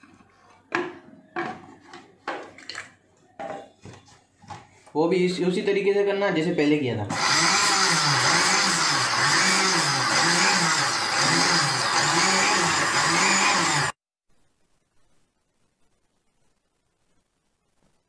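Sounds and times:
mixer grinder running: 7.1s - 14.0s.

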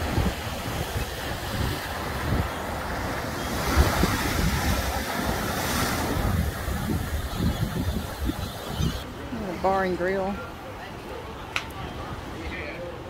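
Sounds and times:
wave crashing against piling: 0.0s - 8.4s
wind gusting on microphone: 0.0s - 10.4s
ocean surf washing around pilings: 0.0s - 10.6s.

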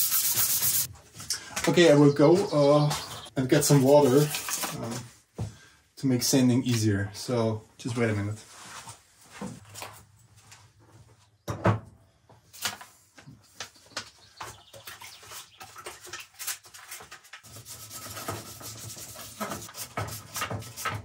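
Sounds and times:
wet sandpaper rubbing: 0.0s - 0.9s, 3.5s - 4.8s, 16.4s - 21.0s.

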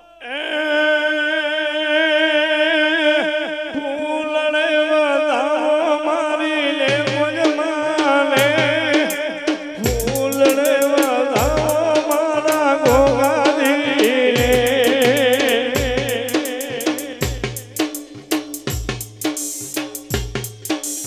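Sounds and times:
drum strokes: 6.9s - 21.0s
deep bass beats: 9.9s - 10.6s, 12.9s - 13.4s.

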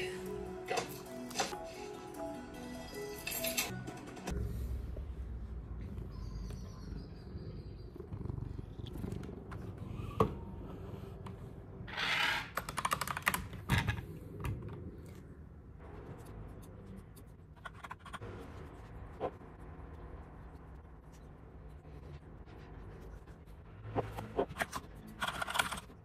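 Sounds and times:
mechanical keyboard keys clacking: 12.5s - 13.6s.

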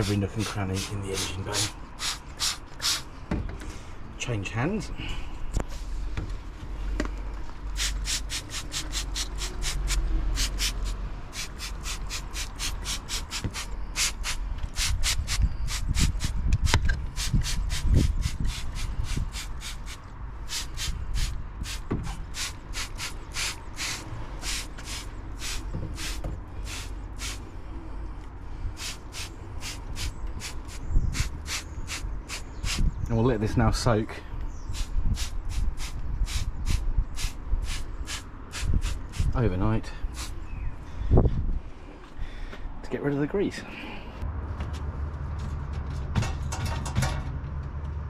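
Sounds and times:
spray bottle squirting: 0.4s - 3.1s, 7.8s - 27.4s, 28.8s - 32.8s, 34.8s - 39.3s.

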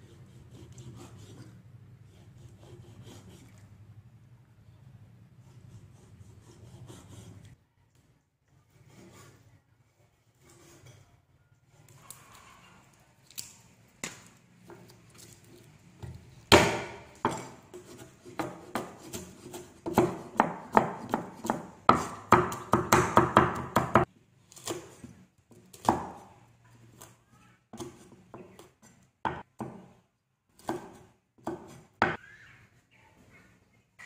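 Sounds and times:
cleaver chopping on wooden block: 16.5s - 17.6s.

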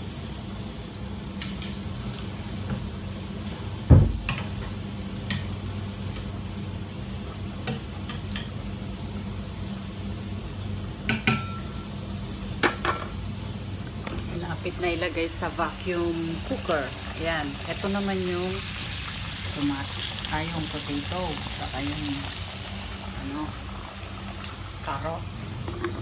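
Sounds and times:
loud thump: 3.9s - 4.2s.

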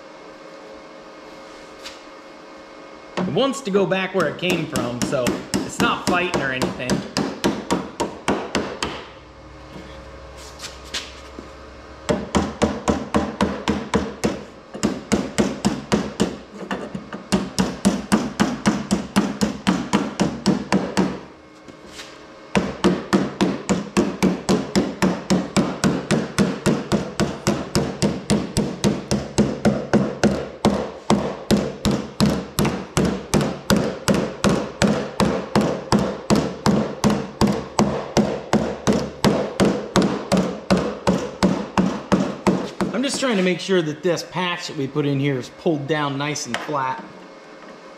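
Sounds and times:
hammer tapping sheet metal: 3.2s - 9.1s, 22.6s - 43.5s.

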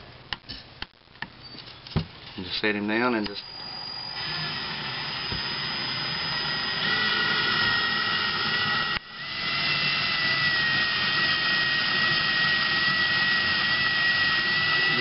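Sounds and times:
cordless drill whining: 3.3s - 15.0s.

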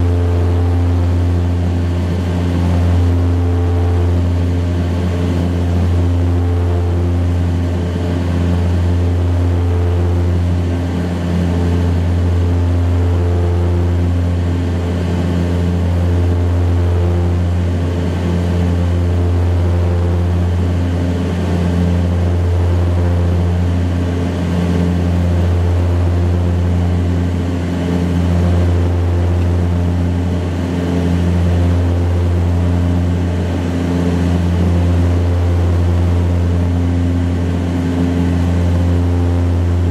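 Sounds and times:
deep propeller drone: 0.0s - 39.9s.

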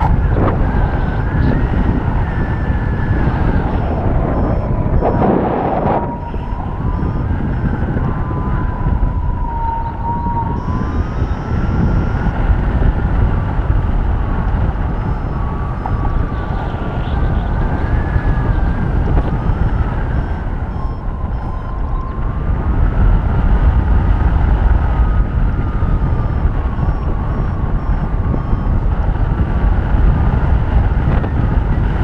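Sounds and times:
thin tone drifting in pitch: 0.0s - 12.6s, 14.9s - 22.4s
wind rushing over microphone: 0.0s - 32.0s.

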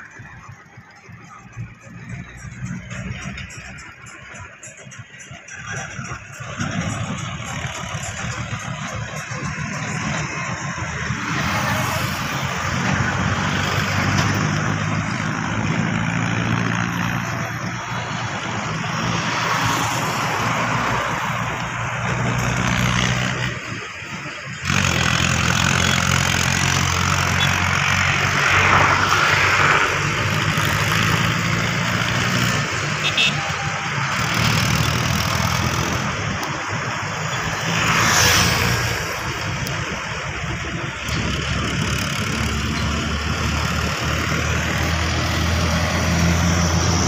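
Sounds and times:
vehicle engine running: 0.0s - 47.0s
wind and road noise: 0.0s - 47.0s.

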